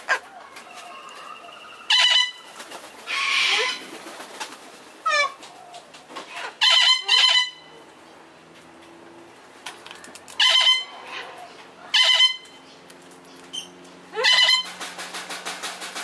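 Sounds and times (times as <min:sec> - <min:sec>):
parrots chattering calls: 0:01.3 - 0:02.5, 0:03.1 - 0:03.8, 0:06.3 - 0:07.7, 0:10.4 - 0:12.6, 0:13.5 - 0:14.7.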